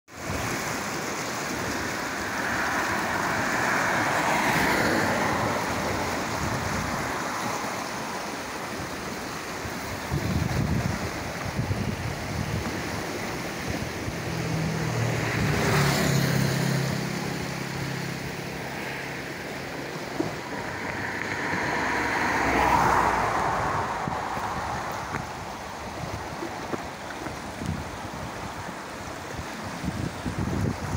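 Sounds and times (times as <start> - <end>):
floodwater rushing: 0.1 - 30.9
vehicle engine passing: 14.1 - 27.1.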